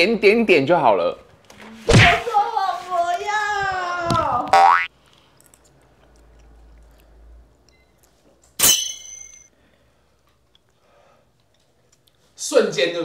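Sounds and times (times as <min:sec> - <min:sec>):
sharp ringing clink: 0:08.6 - 0:09.5.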